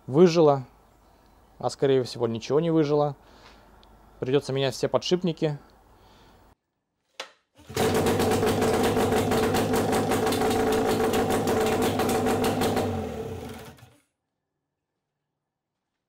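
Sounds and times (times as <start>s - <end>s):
outboard engine running: 7.7s - 13.9s.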